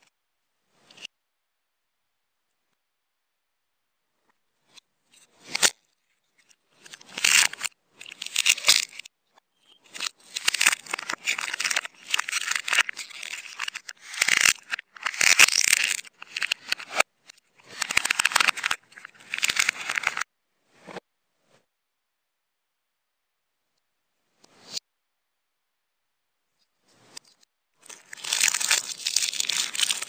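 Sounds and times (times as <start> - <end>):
plastic crinkling and tearing: 9.9 - 17.0, 17.6 - 20.2, 27.8 - 30.0.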